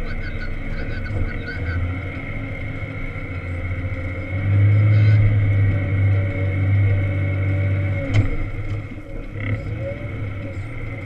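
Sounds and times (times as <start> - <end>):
wheel loader diesel engine: 0.0 - 11.0.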